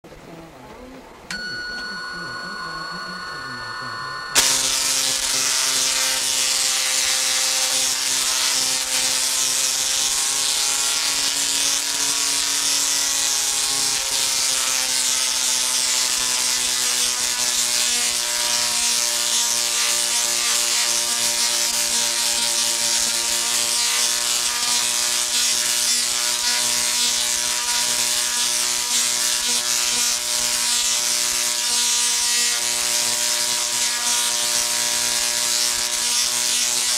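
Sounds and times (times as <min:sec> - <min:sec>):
high whine: 0:01.3 - 0:07.3
electric streamers crackling: 0:02.6 - 0:36.9
tesla coil harsh buzz: 0:02.6 - 0:36.9
power arc: 0:04.4 - 0:36.9.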